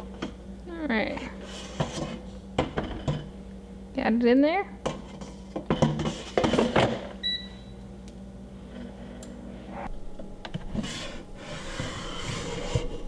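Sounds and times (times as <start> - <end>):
low steady hum: 0.0 - 13.0
short beep: 7.2 - 7.8.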